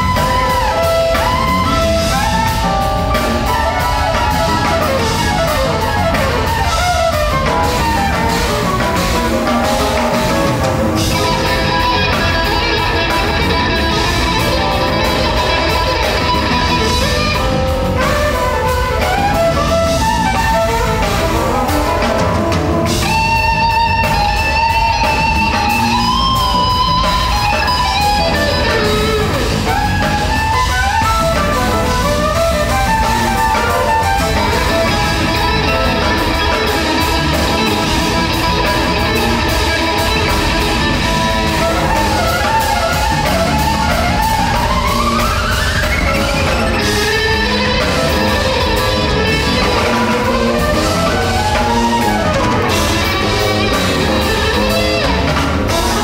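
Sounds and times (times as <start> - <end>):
electric guitar lead lines: 0.0 - 56.0
jazz-rock band playing: 0.0 - 56.0.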